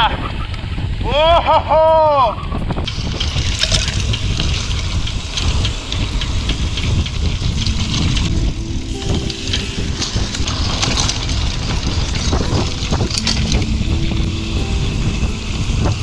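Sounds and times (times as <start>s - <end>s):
wind buffeting microphone: 0.0s - 16.0s
mountain bike clattering on trail: 2.8s - 13.8s.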